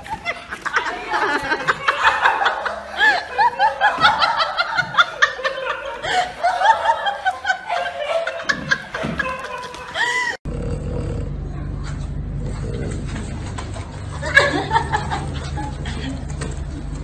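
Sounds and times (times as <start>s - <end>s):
high-pitched laughter: 0.0s - 10.4s.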